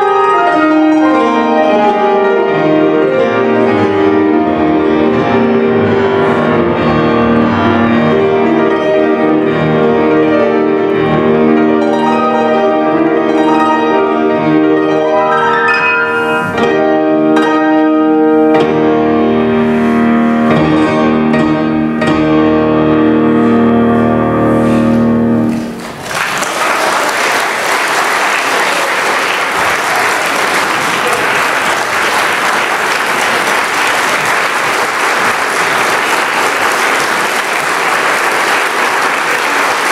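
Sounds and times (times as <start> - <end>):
grand piano chords: 0.0 - 26.2, 26.9 - 39.9
audience applauding: 25.5 - 39.9.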